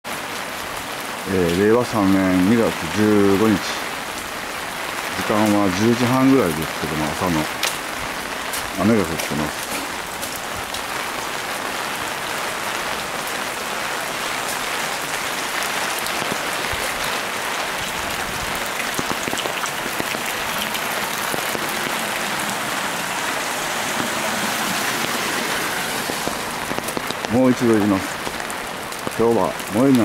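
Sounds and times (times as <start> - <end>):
rain on wet pavement: 0.0 - 30.0.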